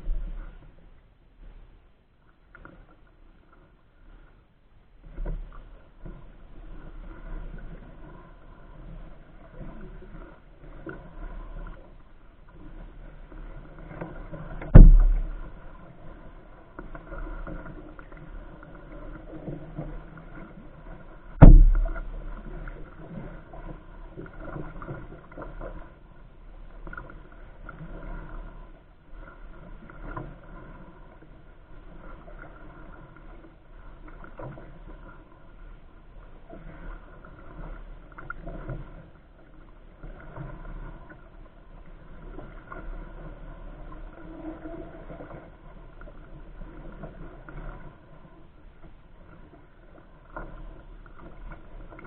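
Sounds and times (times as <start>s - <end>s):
paddle strokes in water: 0.0s - 52.0s
water swishing against canoe: 0.0s - 52.0s
sharp knocks: 14.7s - 15.5s, 21.4s - 22.0s.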